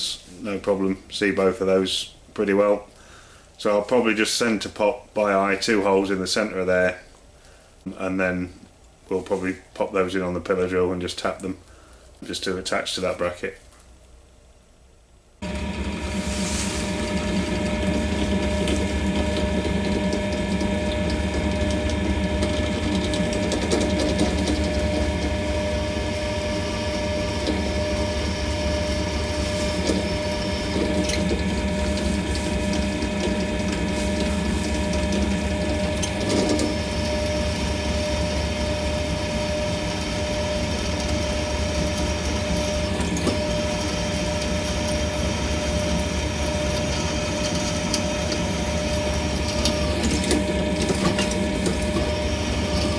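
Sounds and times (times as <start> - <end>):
drill motor humming: 15.4 - 52.9.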